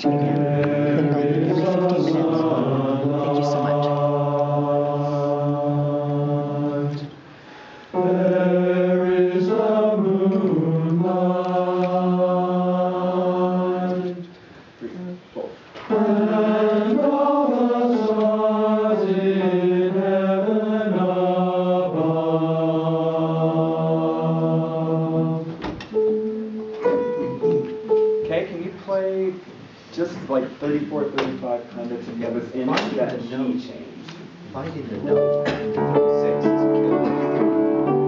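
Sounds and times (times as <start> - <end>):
men singing in chords: 0.0 - 7.3, 7.9 - 14.4, 15.9 - 25.7.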